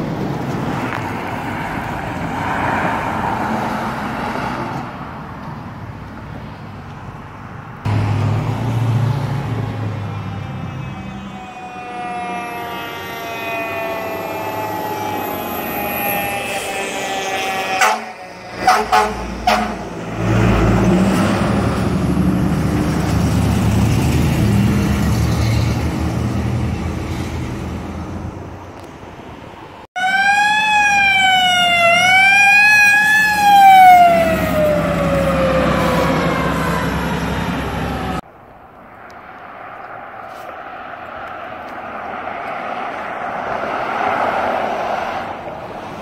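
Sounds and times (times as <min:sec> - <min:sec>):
fire truck engine passing: 0:00.0 - 0:46.0
siren wailing: 0:09.2 - 0:19.2, 0:30.0 - 0:38.2
fire truck horn blasts: 0:09.7 - 0:20.1.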